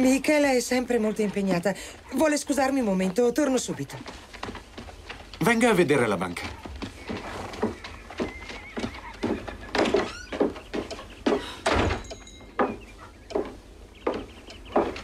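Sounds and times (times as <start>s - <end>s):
footsteps on wood: 0.0s - 15.0s
horse neighing: 7.0s - 10.3s
door shutting with thump: 11.6s - 12.2s.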